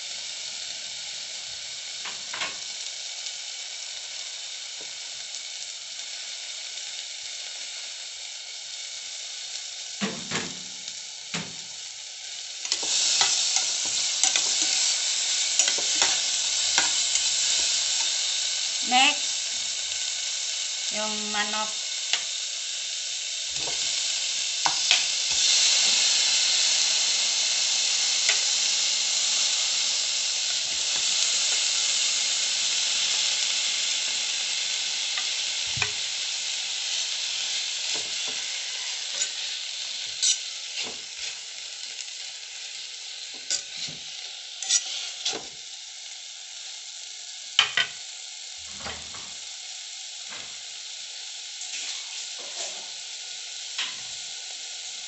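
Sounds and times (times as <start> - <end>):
food sizzling in a saucepan: 0.0 - 55.0
spatula scraping a pan: 40.1 - 41.5, 43.4 - 45.6, 51.7 - 52.9.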